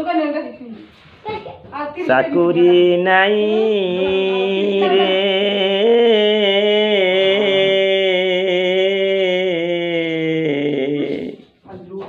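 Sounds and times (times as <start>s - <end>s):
elderly man singing: 2.0s - 11.6s.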